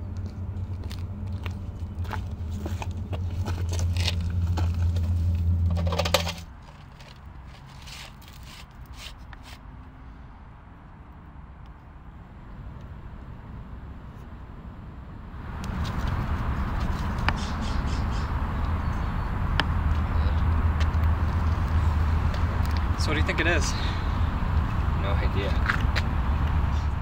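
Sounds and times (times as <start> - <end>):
footsteps on gravel: 0.2 - 5.6, 25.4 - 26.1.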